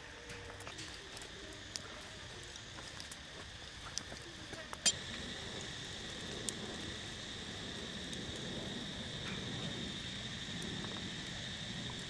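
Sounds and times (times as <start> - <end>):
insect chorus buzzing: 4.9 - 12.0
low background rumble: 4.9 - 12.0.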